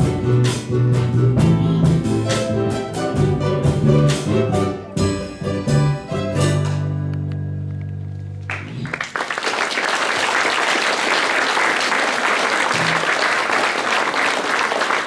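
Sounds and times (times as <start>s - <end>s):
ukulele ensemble chord: 0.0s - 8.3s
audience applause: 8.5s - 15.0s.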